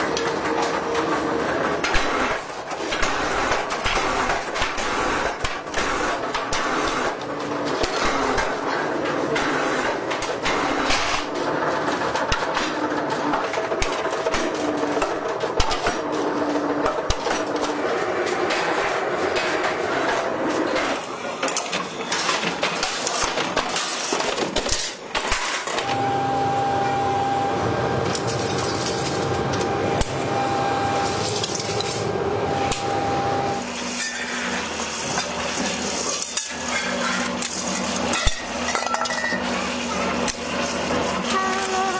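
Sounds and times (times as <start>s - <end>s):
machinery running: 0.0s - 41.9s
high-toned machine hum: 25.8s - 33.8s.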